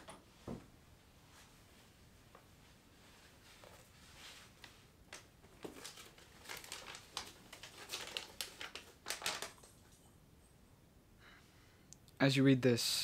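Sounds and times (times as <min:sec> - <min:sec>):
paper crinkling: 0:03.4 - 0:10.0.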